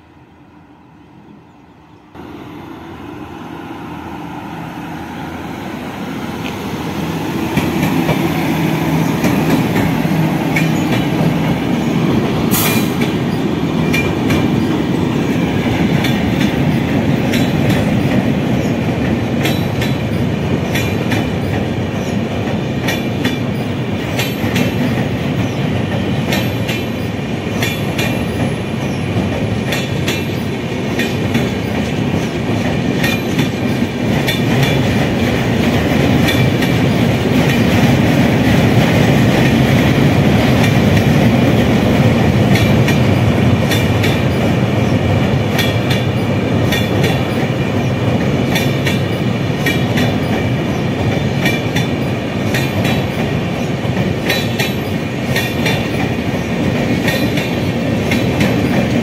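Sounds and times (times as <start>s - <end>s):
passenger train rolling past: 0.0s - 59.0s
wheels clicking over rail joints: 29.2s - 44.6s, 45.5s - 47.5s, 48.1s - 59.0s.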